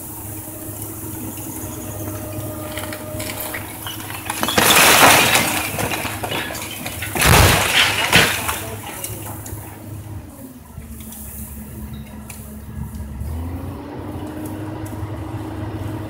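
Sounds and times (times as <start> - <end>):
brick chimney collapsing: 0.0 - 10.1
excavator diesel engine running: 0.0 - 16.0
bricks tumbling: 2.5 - 9.8.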